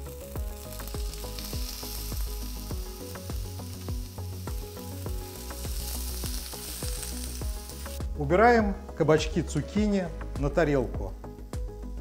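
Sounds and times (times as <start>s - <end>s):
zucchini sizzling in grill pan: 0.0s - 8.0s.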